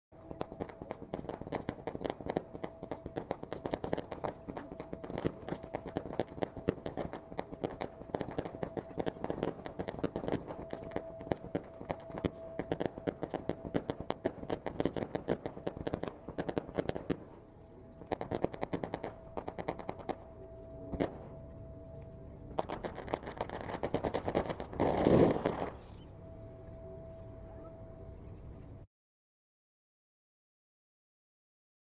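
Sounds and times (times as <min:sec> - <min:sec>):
fireworks bangs and crackling: 0:00.3 - 0:17.3, 0:18.0 - 0:20.2, 0:20.9 - 0:21.3, 0:22.6 - 0:25.9.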